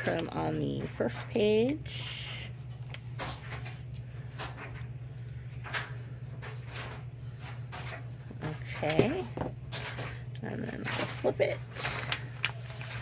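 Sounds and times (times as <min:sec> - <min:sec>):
steady low hum: 0:00.0 - 0:13.0
paper rustling and tapping: 0:10.8 - 0:13.0.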